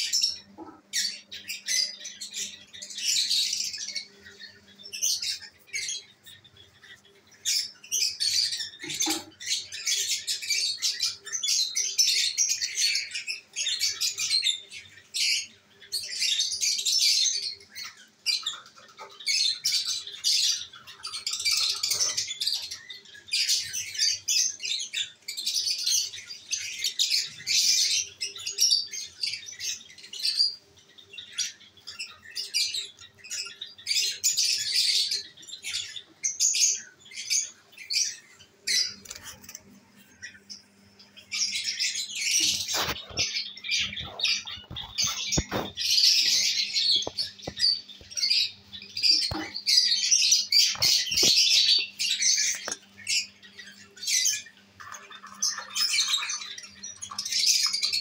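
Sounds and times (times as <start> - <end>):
lovebirds chirping and squawking: 0.0 - 58.0.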